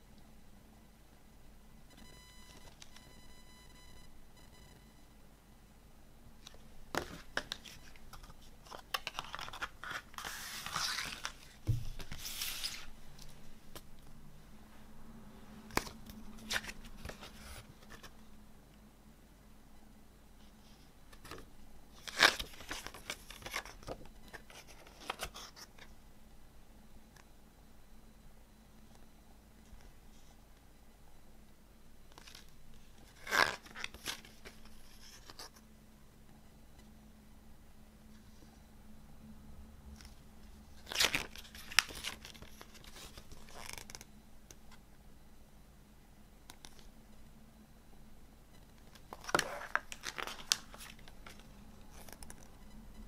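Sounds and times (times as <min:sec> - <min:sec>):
paper pages turning: 0:06.4 - 0:13.4, 0:15.7 - 0:18.1, 0:22.0 - 0:25.9, 0:32.1 - 0:35.6, 0:40.8 - 0:44.0, 0:48.9 - 0:52.5.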